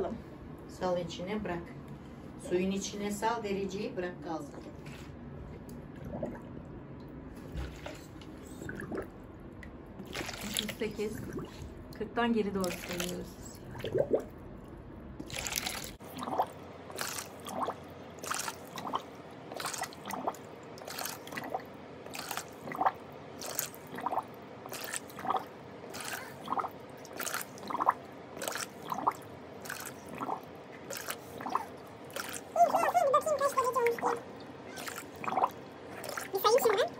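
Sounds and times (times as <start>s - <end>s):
water poured into bathtub: 10.0s - 11.7s, 12.6s - 14.3s, 15.2s - 32.6s.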